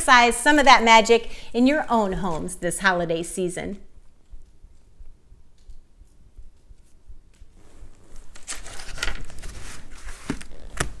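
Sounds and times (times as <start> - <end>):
leather rustling on paper: 6.0 - 11.0.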